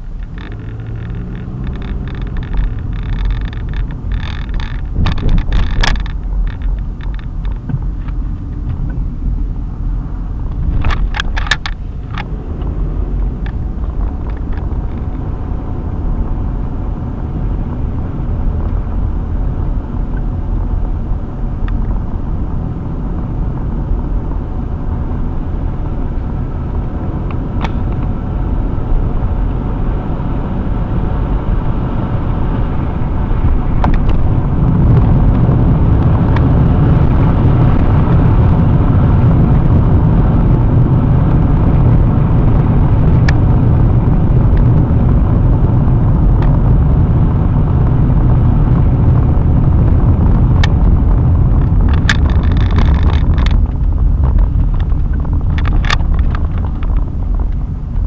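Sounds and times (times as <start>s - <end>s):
brief rattle: 0.0s - 8.2s
car road rumble: 0.0s - 58.0s.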